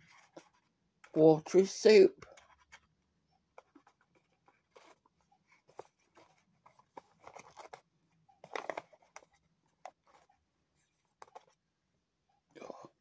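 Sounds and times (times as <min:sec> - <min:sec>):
plastic spoon scraping in pouch: 0:03.6 - 0:11.6
pouch crinkling: 0:03.7 - 0:10.3.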